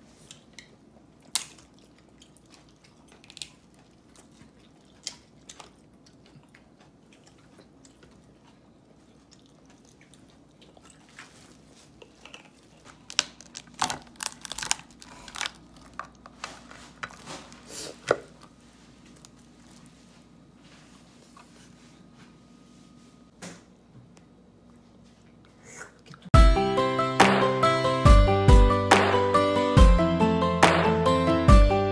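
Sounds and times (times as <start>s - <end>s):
crab shell cracking: 12.3s - 16.4s.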